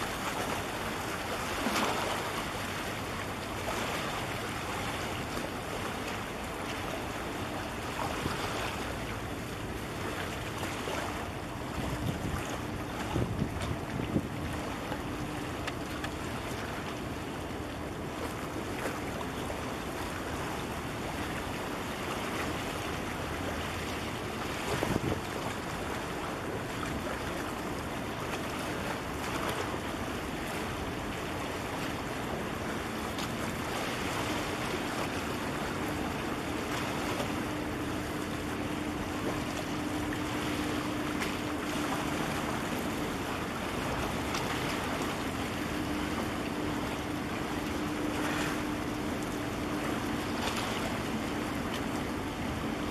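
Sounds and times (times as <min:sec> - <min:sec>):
ship low hum: 0:00.0 - 0:52.9
wind on microphone: 0:11.8 - 0:14.5, 0:24.7 - 0:25.4.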